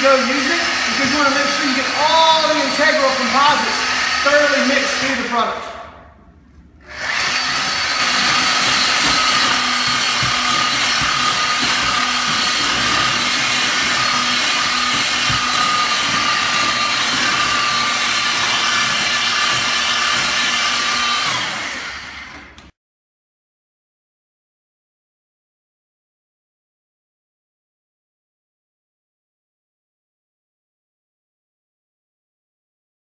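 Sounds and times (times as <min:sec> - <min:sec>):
paddle churning cement mix: 0:00.0 - 0:05.6, 0:06.9 - 0:22.6
paddle mixer motor whine: 0:06.8 - 0:22.6.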